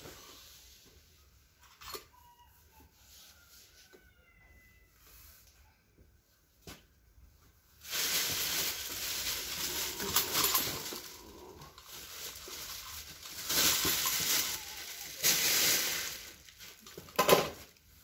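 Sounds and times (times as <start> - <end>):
plastic bag rustling: 7.5 - 18.0.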